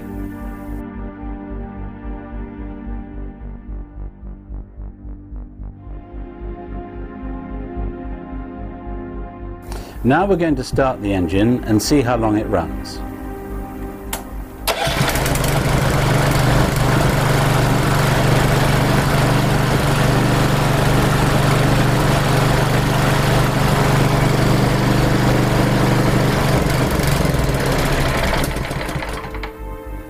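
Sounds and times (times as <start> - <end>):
small gasoline engine running: 14.7 - 29.6.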